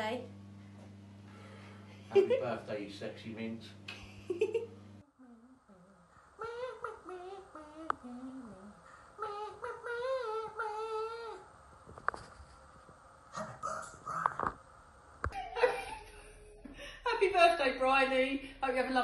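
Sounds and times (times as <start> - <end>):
high voice humming: 5.0 - 11.5.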